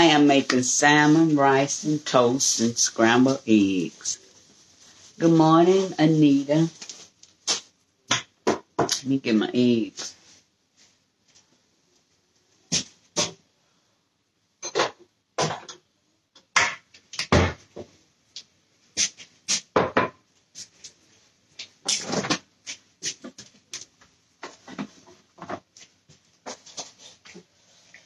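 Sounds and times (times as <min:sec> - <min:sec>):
knocks and bumps on a counter: 0:19.7 - 0:20.2.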